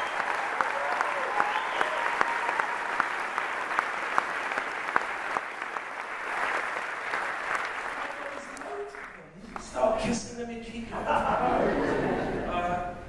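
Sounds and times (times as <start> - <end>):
audience applauding: 0.0 - 9.8.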